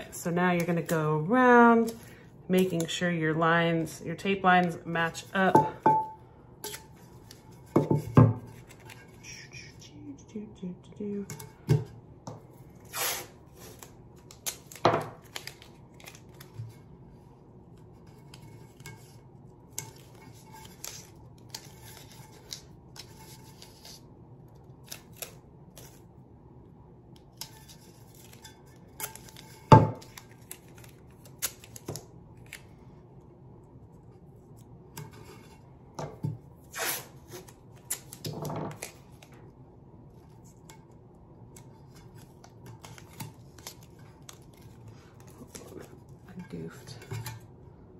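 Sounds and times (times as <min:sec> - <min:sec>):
tape peeling and crackling: 0:12.8 - 0:16.7, 0:30.0 - 0:32.7, 0:36.6 - 0:39.4.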